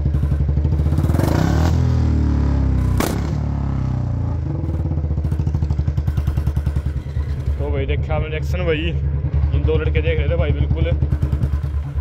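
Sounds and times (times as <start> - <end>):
motorcycle engine decelerating: 0.0 - 12.0
exhaust backfire pop: 2.7 - 3.9.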